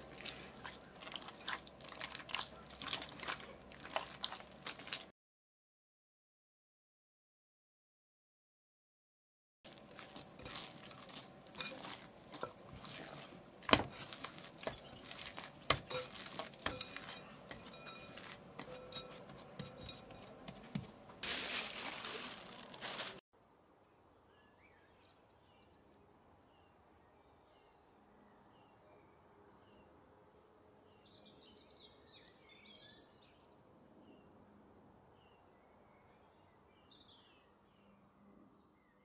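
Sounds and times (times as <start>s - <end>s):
hands kneading dough: 0.0s - 5.1s, 9.7s - 23.2s
knocks and clinks against glass: 15.8s - 20.8s.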